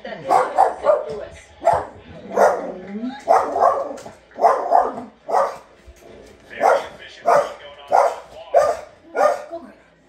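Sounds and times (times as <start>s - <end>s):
dog barking: 0.2s - 5.7s, 6.6s - 9.5s.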